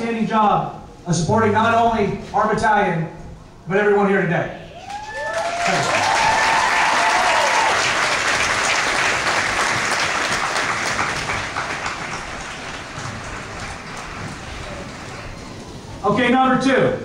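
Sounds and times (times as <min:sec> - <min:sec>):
crowd applauding: 0:04.8 - 0:15.9.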